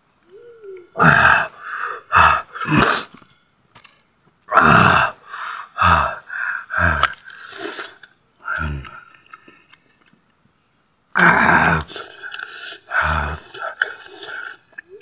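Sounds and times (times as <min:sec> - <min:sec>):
man groaning and grunting: 0:00.8 - 0:03.1, 0:04.5 - 0:07.2, 0:08.4 - 0:09.0, 0:11.2 - 0:12.2, 0:12.9 - 0:13.9.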